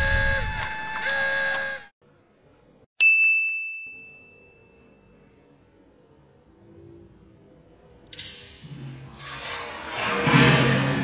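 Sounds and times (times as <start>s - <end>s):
bright ding: 3.0s - 5.2s.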